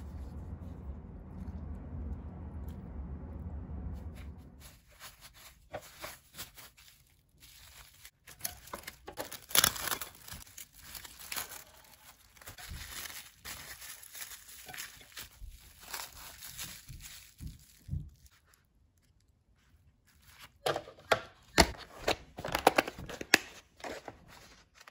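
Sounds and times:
cling wrap crinkling: 4.6 - 20.6
plastic container crackles and clicks: 20.6 - 24.0.

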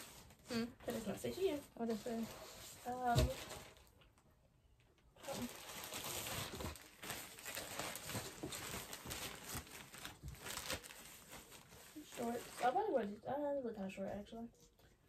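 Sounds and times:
plastic packaging crinkling: 5.2 - 13.2.

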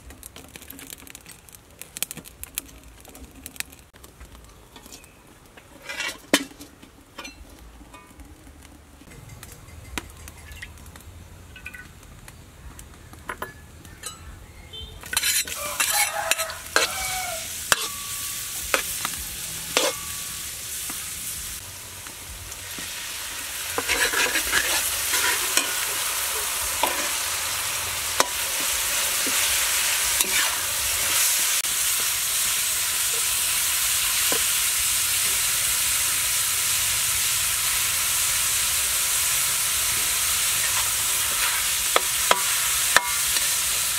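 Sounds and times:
metal spatula scraping pan: 5.7 - 8.1, 15.0 - 19.0, 19.6 - 20.3, 23.6 - 27.2, 28.2 - 31.2, 40.6 - 43.6
food sizzling in wok: 15.0 - 43.9.

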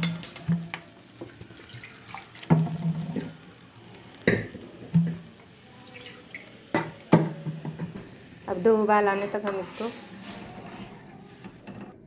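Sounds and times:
spoon knocking and scraping pan: 2.4 - 3.4, 6.7 - 8.1, 9.0 - 12.0.

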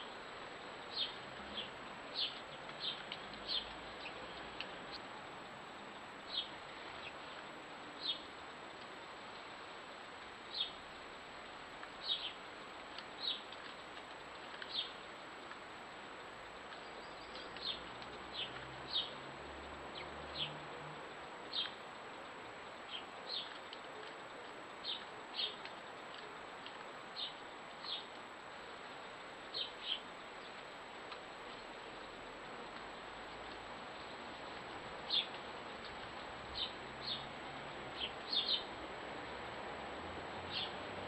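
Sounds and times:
background hiss: 0.0 - 41.0
small bird chirping: 38.0 - 38.7.

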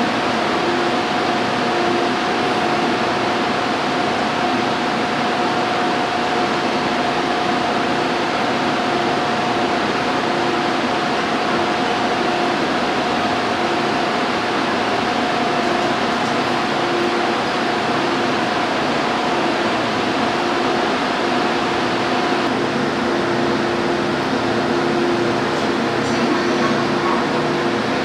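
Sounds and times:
constant hum: 0.0 - 28.0
subway train rushing: 0.0 - 28.0.

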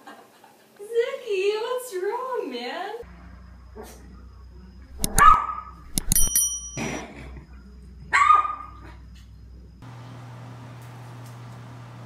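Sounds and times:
sharp clicks: 4.9 - 6.4
brief metallic ring: 5.0 - 7.0
puppy yapping: 5.1 - 5.6, 8.1 - 8.8.

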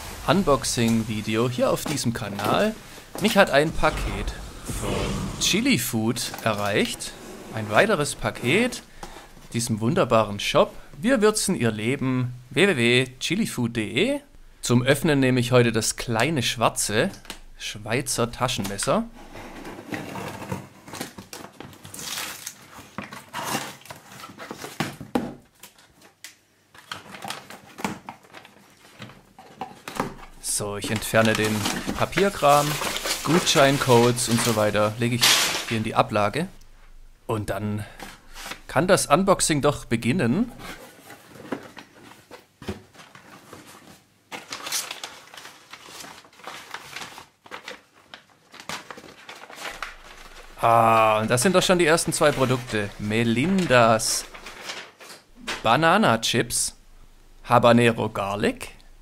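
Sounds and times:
cardboard and paper rustling: 19.7 - 36.2, 40.6 - 55.8.

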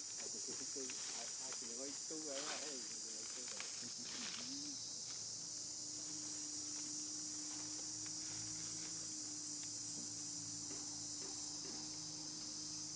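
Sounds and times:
insects chorus: 0.0 - 12.9.

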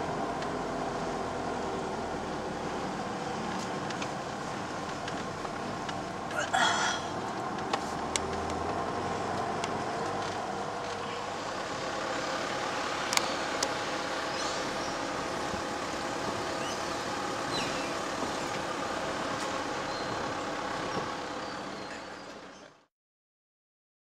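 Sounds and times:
engine and road noise: 0.0 - 22.9.

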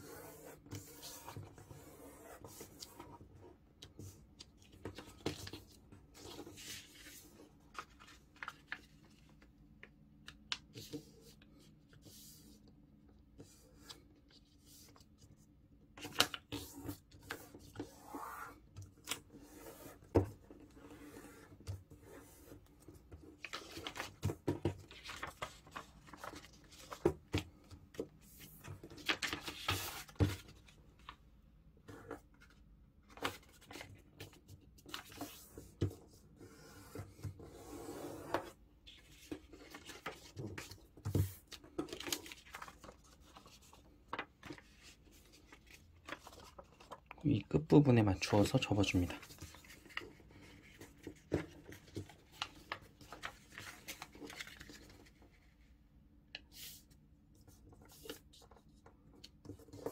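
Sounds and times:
paper rustling and crinkling: 3.9 - 12.0, 21.4 - 31.2, 32.0 - 35.9, 38.9 - 47.5, 48.2 - 55.7.

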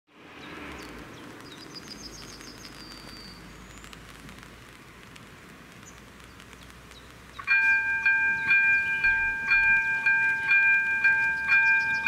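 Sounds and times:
birds chirping: 0.2 - 4.8, 5.7 - 12.0.

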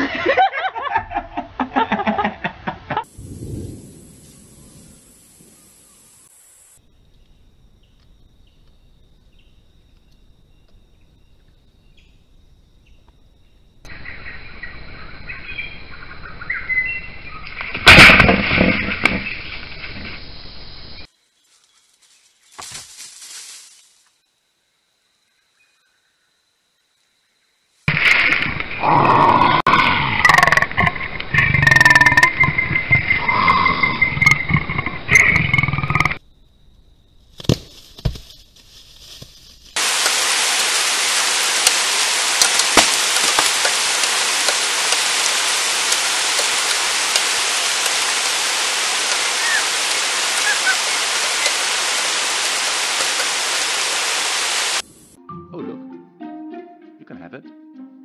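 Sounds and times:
steady hiss: 3.0 - 6.8, 38.6 - 55.2
monkey calling and screeching: 49.2 - 51.7.

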